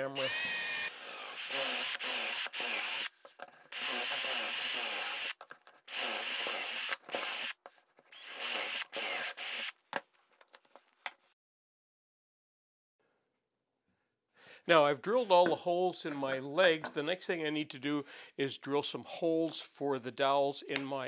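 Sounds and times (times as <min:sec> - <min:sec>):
cordless drill boring into wood: 0:00.0 - 0:03.1, 0:03.7 - 0:09.8.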